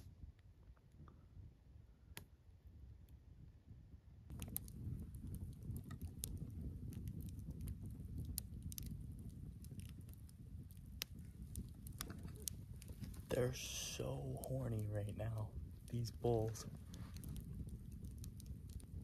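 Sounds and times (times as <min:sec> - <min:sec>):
low rumble: 0:03.5 - 0:19.0
campfire crackling and popping: 0:04.3 - 0:19.0.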